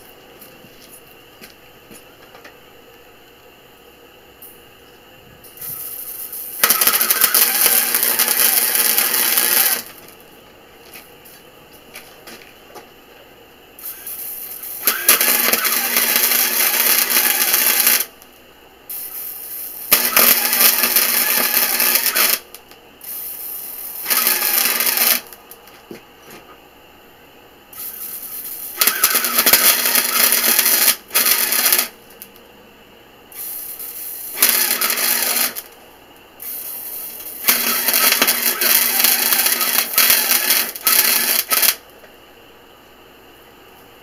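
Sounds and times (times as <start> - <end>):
welding arc crackling: 5.5 - 10.3, 13.8 - 25.6, 27.8 - 32.3, 33.4 - 35.8, 36.4 - 41.9.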